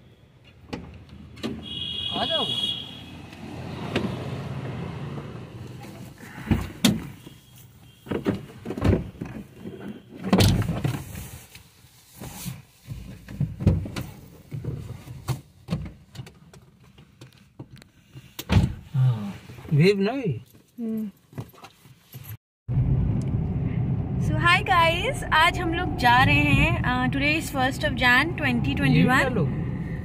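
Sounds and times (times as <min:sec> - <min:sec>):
knocks and thumps in a car: 0:08.0 - 0:11.1, 0:12.8 - 0:16.7.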